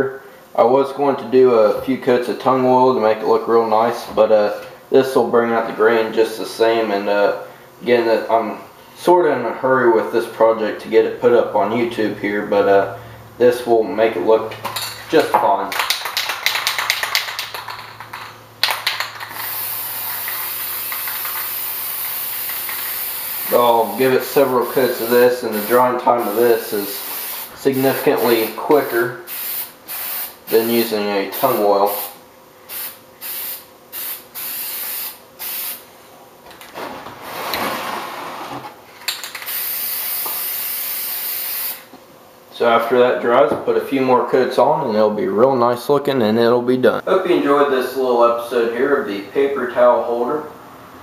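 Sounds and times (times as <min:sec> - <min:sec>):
spray can mixing ball rattling: 0:15.7 - 0:23.6
aerosol spray hiss: 0:19.3 - 0:35.8, 0:39.5 - 0:41.9.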